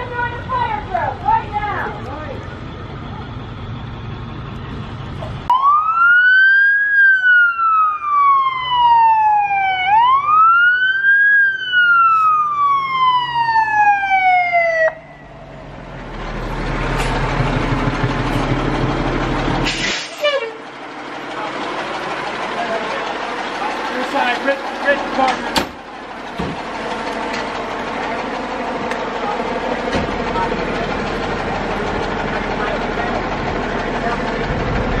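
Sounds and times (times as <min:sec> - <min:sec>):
large vehicle engine rumbling: 0:00.0 - 0:35.0
emergency siren wailing: 0:05.5 - 0:16.0.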